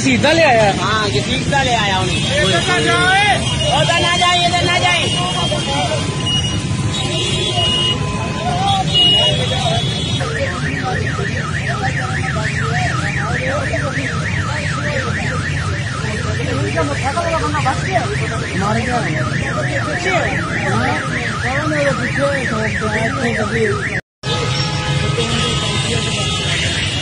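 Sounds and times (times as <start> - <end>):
low rumble of street noise: 0.0 - 27.0
electronic siren warbling: 10.2 - 24.0.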